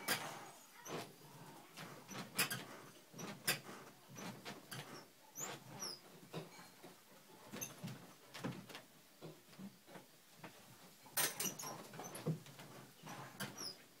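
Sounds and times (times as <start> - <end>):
dog rubbing against wooden frame: 1.8 - 6.1.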